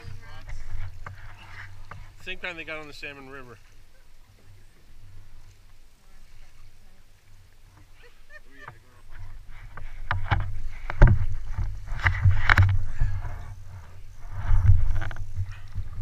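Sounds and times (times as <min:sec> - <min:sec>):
water splashing from oar strokes: 0:00.0 - 0:16.0
oars knocking in oarlocks: 0:08.6 - 0:16.0.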